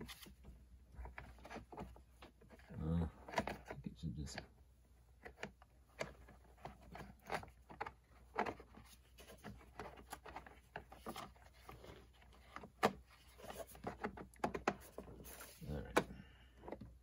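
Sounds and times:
plastic parts clicking and tapping: 0:05.2 - 0:17.0.

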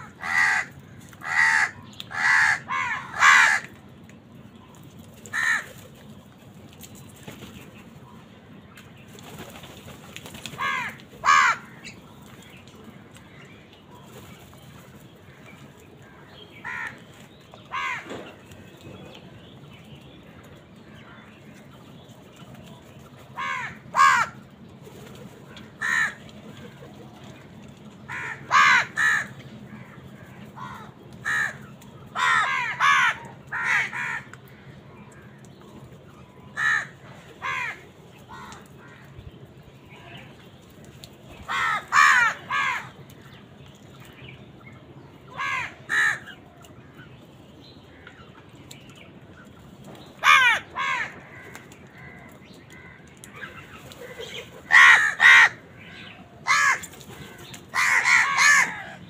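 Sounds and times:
crows cawing: 0:00.0 - 0:03.7, 0:05.3 - 0:05.7, 0:10.6 - 0:12.0, 0:16.6 - 0:17.0, 0:17.7 - 0:18.2, 0:23.4 - 0:24.4, 0:25.7 - 0:26.2, 0:28.1 - 0:34.8, 0:36.6 - 0:39.1, 0:41.5 - 0:42.9, 0:45.3 - 0:46.4, 0:50.2 - 0:53.4, 0:54.0 - 0:59.0.

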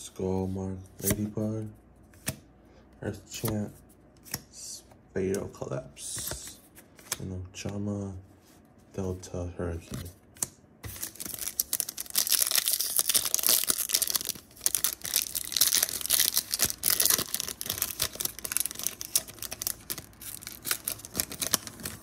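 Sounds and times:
foil wrapper tearing and crinkling: 0:10.9 - 0:22.0.

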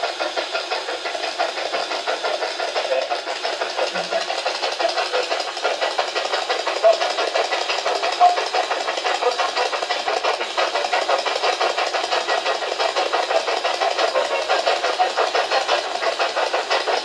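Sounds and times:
rapidly chopping radio static: 0:02.8 - 0:04.3, 0:13.6 - 0:16.0.

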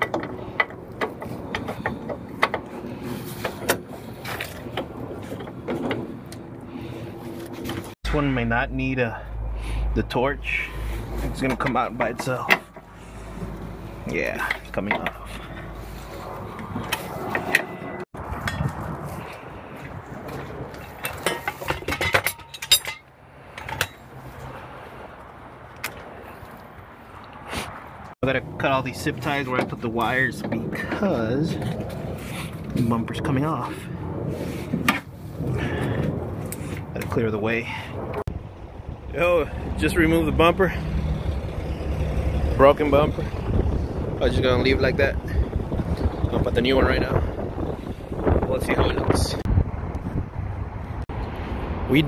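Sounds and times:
metal hand tools clinking: 0:20.8 - 0:24.0.

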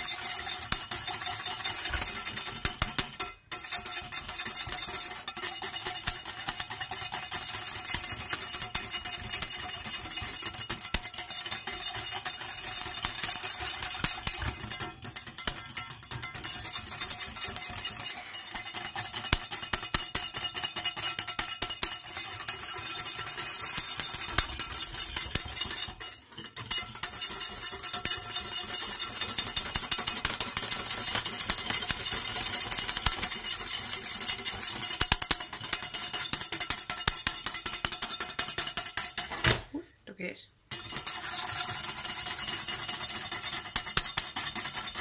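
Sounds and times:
wire whisk rattling in metal pan: 0:00.0 - 0:39.6, 0:40.7 - 0:45.0.

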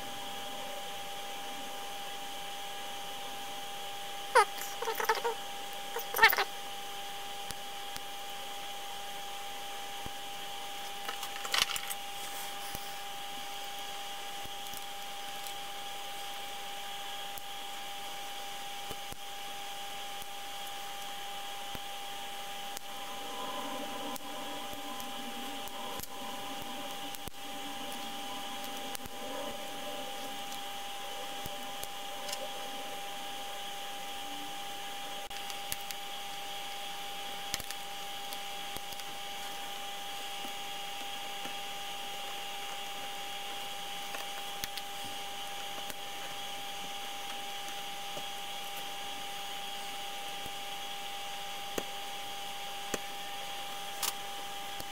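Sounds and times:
hum and hiss: 0:00.0 - 0:54.9
thin steady whine: 0:00.0 - 0:54.9.

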